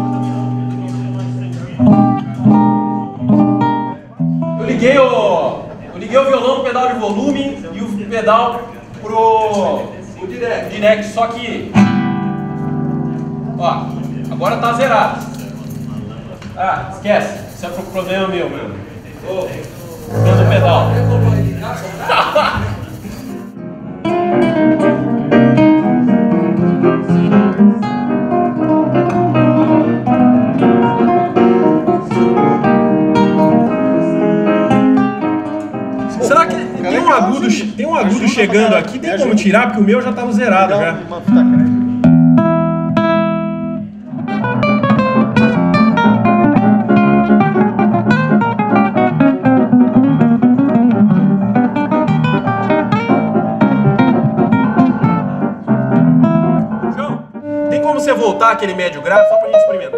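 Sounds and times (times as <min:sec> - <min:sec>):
nylon-string acoustic guitar: 0:00.0 - 0:04.6, 0:19.9 - 0:38.6, 0:41.3 - 0:57.9
piano: 0:00.0 - 0:04.8, 0:18.8 - 0:59.9.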